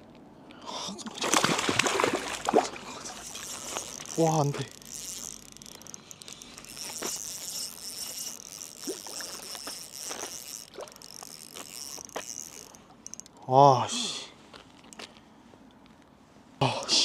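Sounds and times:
high-pitched insect buzzing: 3.1 - 13.3.

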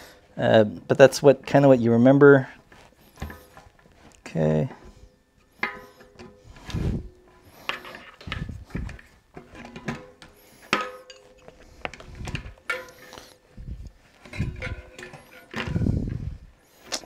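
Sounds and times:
metallic clinks and knocks: 7.7 - 16.3.

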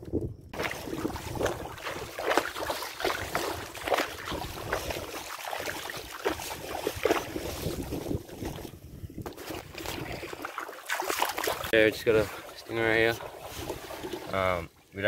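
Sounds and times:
wind buffeting microphone: 0.0 - 10.5
water splashing: 0.6 - 8.7, 9.3 - 15.0.

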